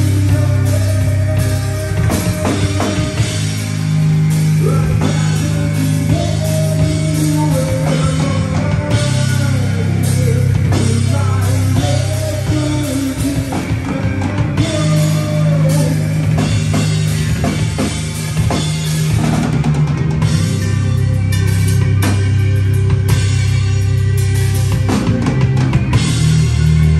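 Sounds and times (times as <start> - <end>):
bass guitar low notes: 0.0 - 26.9
drum kit: 0.0 - 26.9
electric guitar: 0.0 - 26.9.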